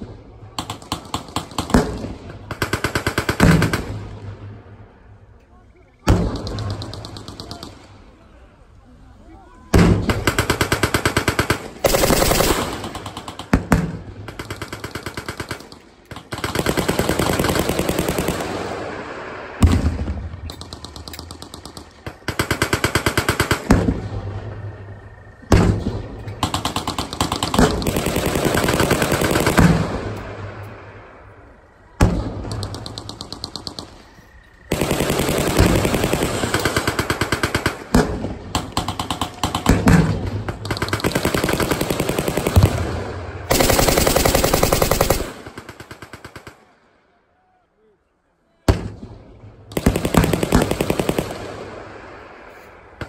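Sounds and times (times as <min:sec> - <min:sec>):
machine-gun fire bursts: 0:00.0 - 0:04.3, 0:09.7 - 0:19.0, 0:19.6 - 0:24.6, 0:25.5 - 0:30.4, 0:34.7 - 0:46.7, 0:49.7 - 0:51.9.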